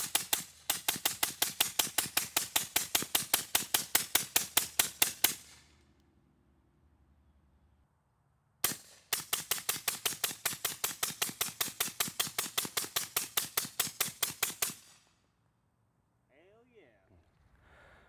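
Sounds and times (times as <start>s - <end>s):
suppressed rifle shots: 0.0s - 5.7s, 8.6s - 15.0s.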